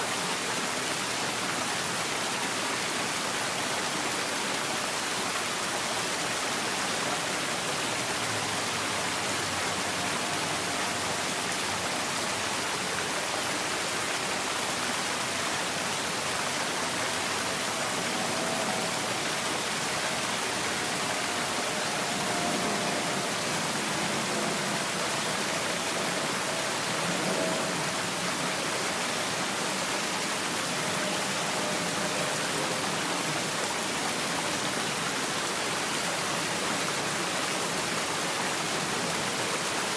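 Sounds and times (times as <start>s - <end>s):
stream running over rocks: 0.0s - 39.9s
faint thin tone: 17.0s - 33.3s.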